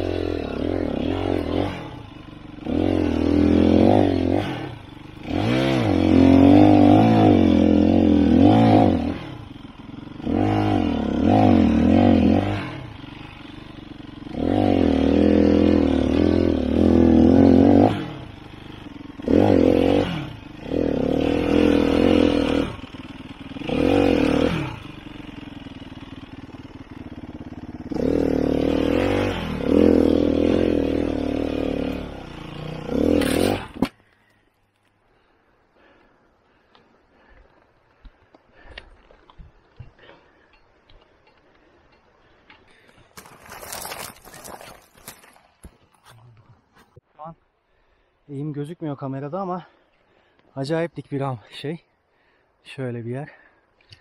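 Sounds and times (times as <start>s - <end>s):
motorcycle engine revving: 0.0s - 34.0s.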